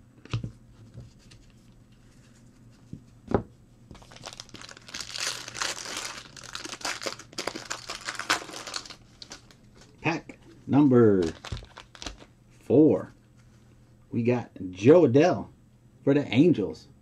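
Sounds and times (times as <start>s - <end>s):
foil wrapper crinkling and tearing: 4.0s - 9.6s, 11.2s - 12.3s.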